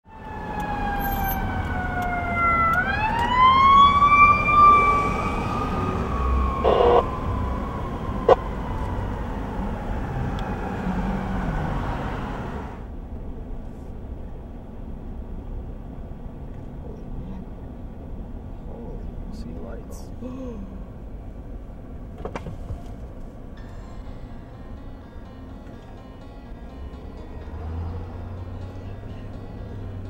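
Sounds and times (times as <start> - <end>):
traffic noise: 0.0 - 30.0
siren wailing: 0.1 - 12.8.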